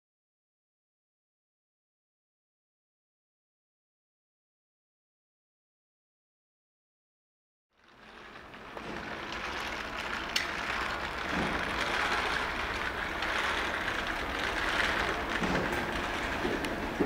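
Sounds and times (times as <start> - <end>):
shopping cart rattling on hard floor: 7.8 - 17.0.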